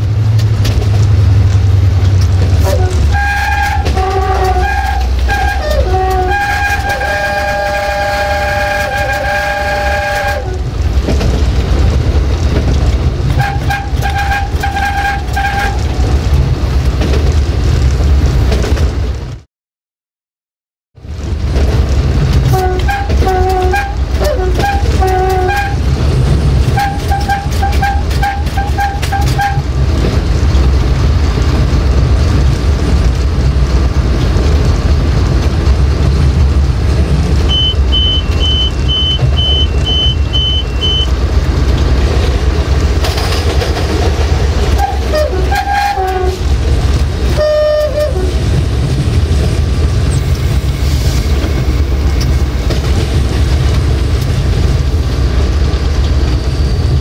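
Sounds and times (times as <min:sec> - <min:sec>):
rail-joint clicks: 0:00.0 - 0:09.5, 0:10.4 - 0:19.4, 0:21.5 - 0:57.0
locomotive air horn blasts: 0:02.6 - 0:10.7, 0:13.4 - 0:16.0, 0:22.5 - 0:25.9, 0:26.8 - 0:29.7, 0:44.7 - 0:46.5, 0:47.3 - 0:48.4
high electronic beeping: 0:37.5 - 0:41.1.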